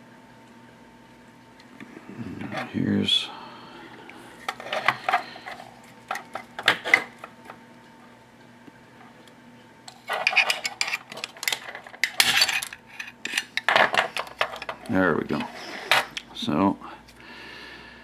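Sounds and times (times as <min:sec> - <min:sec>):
metal parts clinking and scraping: 0:09.9 - 0:14.8.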